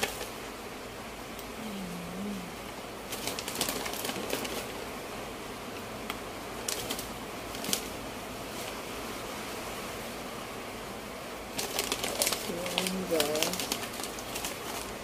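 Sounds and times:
steady background hiss: 0.0s - 15.0s
crackers packet crinkling: 11.6s - 14.9s.

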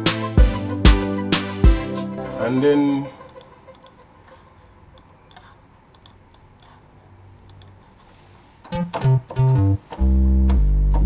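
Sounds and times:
computer mouse clicks: 3.3s - 4.0s, 4.9s - 7.8s.

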